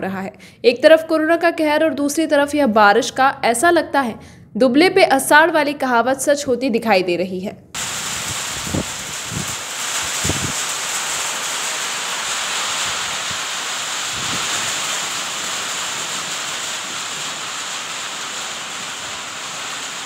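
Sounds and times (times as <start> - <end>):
heavy rain: 7.8 - 20.0.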